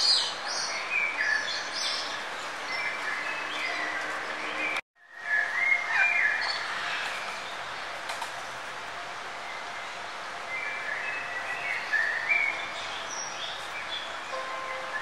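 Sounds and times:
birds chirping and trilling: 0.0s - 8.0s, 9.4s - 15.0s
steady background hiss: 5.1s - 15.0s.

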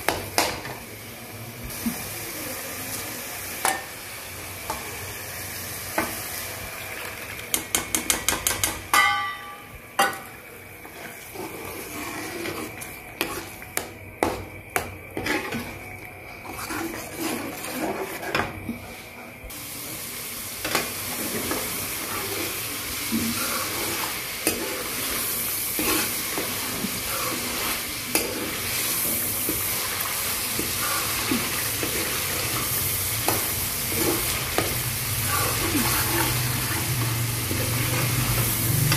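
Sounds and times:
masala sizzling: 0.0s - 38.9s
spoon knocking frying pan: 7.5s - 10.4s.

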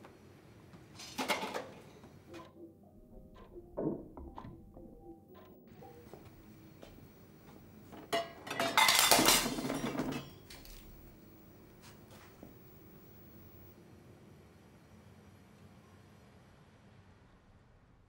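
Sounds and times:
dishes and cutlery clattering: 1.0s - 1.9s, 8.0s - 11.0s.

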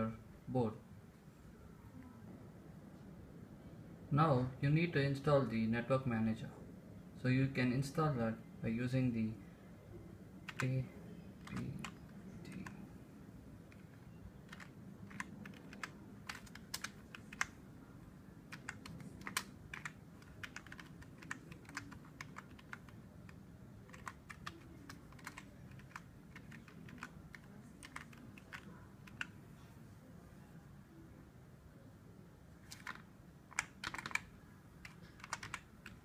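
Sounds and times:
computer keyboard key clicks: 10.5s - 10.7s, 14.5s - 17.6s, 18.5s - 23.0s, 23.9s - 29.3s, 32.7s - 36.0s.

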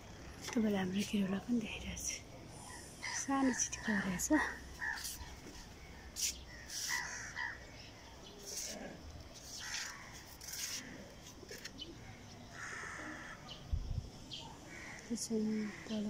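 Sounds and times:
crows cawing: 4.8s - 5.1s, 6.5s - 7.7s, 9.5s - 10.3s, 12.5s - 13.6s, 14.7s - 16.0s.

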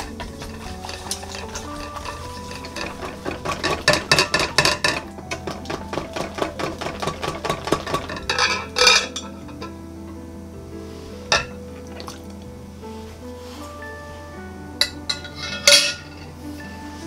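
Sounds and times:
whisk clicking against glass bowl: 0.0s - 9.2s.

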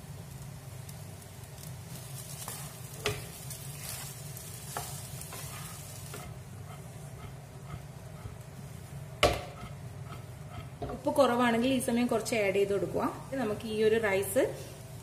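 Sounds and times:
rice sizzling in a frying pan: 0.0s - 15.0s
light knocks against the pan: 9.2s - 9.6s.

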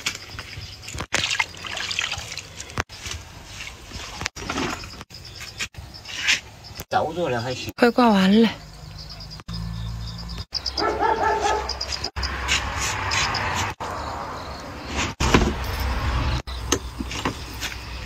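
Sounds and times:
dog barking: 10.8s - 12.1s.

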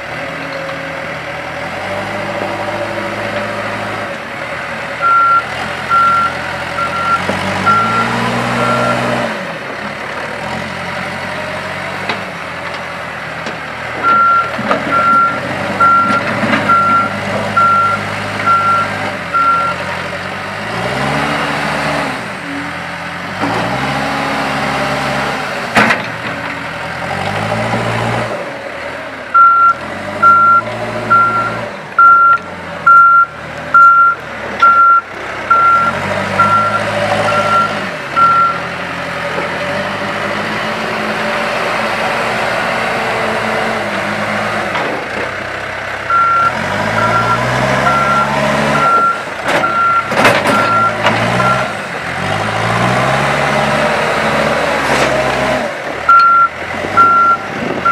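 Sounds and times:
diesel engine revving: 0.0s - 57.9s
reverse alarm beeping: 5.0s - 9.0s, 14.0s - 19.8s, 29.4s - 38.6s, 46.1s - 51.7s, 56.1s - 57.9s.

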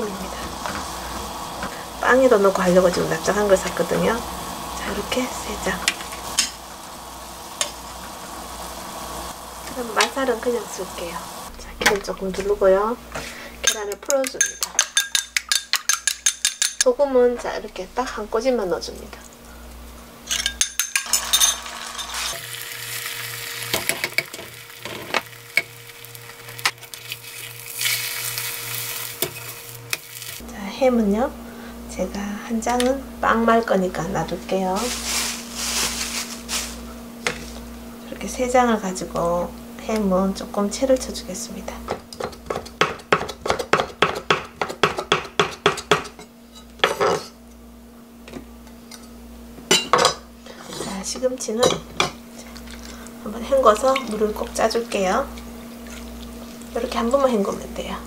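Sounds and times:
egg sizzling in frying pan: 2.5s - 11.5s, 19.7s - 30.4s, 52.1s - 57.4s.

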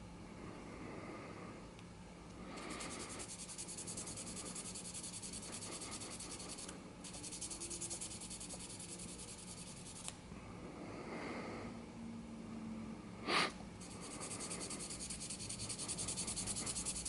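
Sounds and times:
sandpaper rasping on pipe stem: 13.8s - 17.0s.

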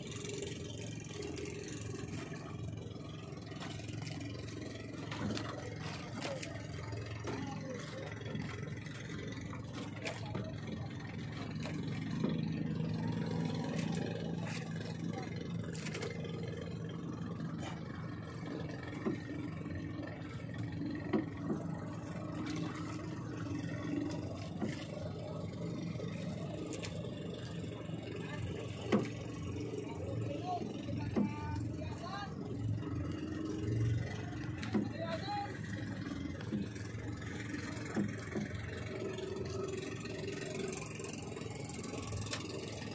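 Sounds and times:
boat engine humming: 0.0s - 42.9s.

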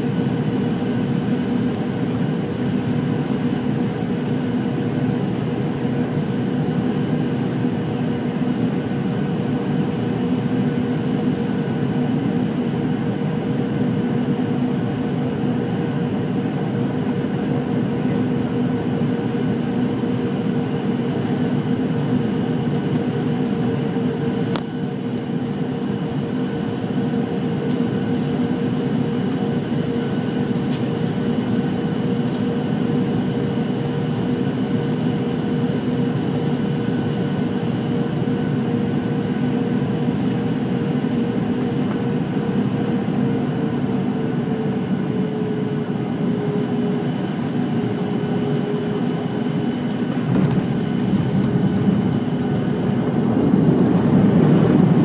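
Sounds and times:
airliner cabin engine rush: 0.0s - 55.0s
steady low hum: 45.8s - 55.0s.

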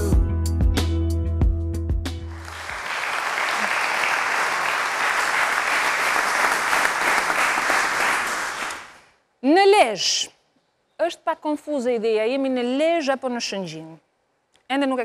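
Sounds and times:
studio audience applauding: 2.3s - 9.1s.

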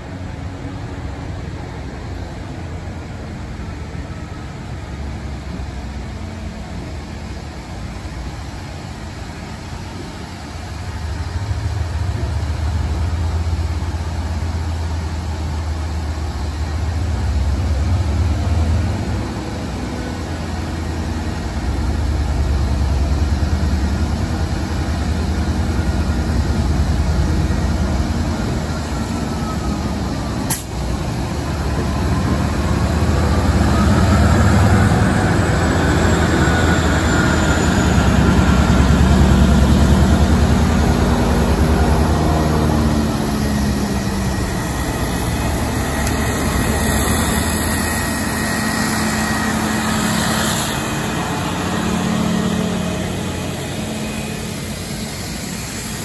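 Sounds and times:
diesel generator running: 0.0s - 56.0s
diesel locomotive engine rumbling: 0.0s - 56.0s
train cars rolling by: 0.0s - 56.0s
sharp click: 30.5s - 30.7s.

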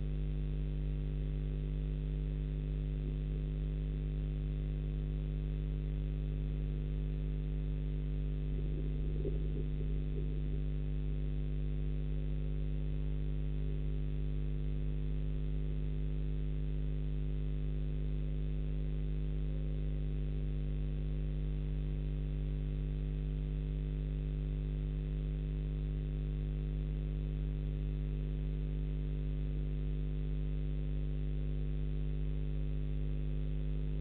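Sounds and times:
electrical mains hum: 0.0s - 15.8s, 33.5s - 34.0s.

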